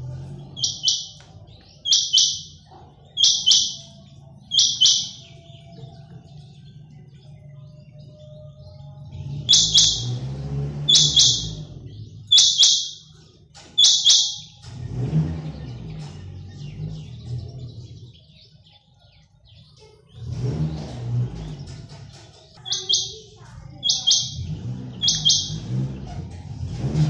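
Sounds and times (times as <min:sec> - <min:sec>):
quail calling: 0:00.6 - 0:01.2, 0:01.8 - 0:05.4, 0:09.5 - 0:10.2, 0:10.9 - 0:11.6, 0:12.3 - 0:13.1, 0:13.8 - 0:14.6, 0:22.6 - 0:25.7.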